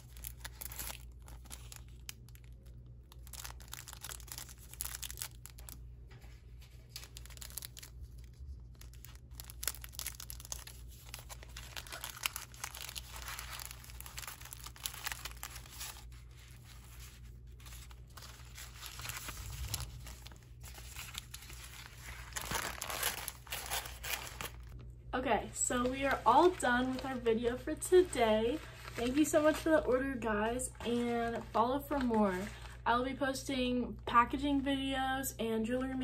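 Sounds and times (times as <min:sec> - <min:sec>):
plastic bags crinkling: 0:00.0 - 0:24.8.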